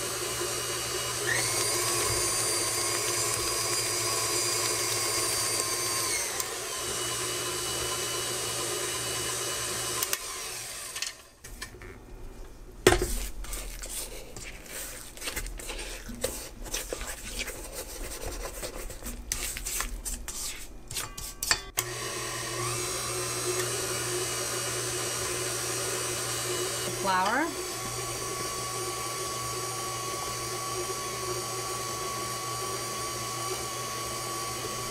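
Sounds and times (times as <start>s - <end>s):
stand mixer running: 0.0s - 11.3s, 21.8s - 34.9s
spatula scraping metal bowl: 13.0s - 21.8s.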